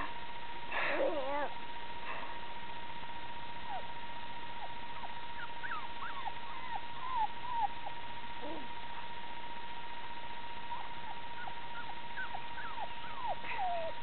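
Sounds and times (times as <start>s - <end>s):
puppies squeaking: 4.6s - 8.6s, 10.7s - 14.0s.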